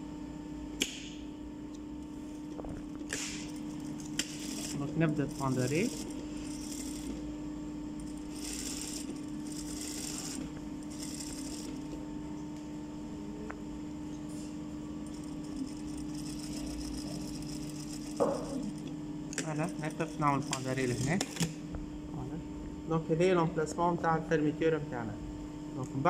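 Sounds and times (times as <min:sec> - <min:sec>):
sewing machine stitching: 0:02.8 - 0:07.2, 0:08.1 - 0:12.0, 0:15.0 - 0:21.6.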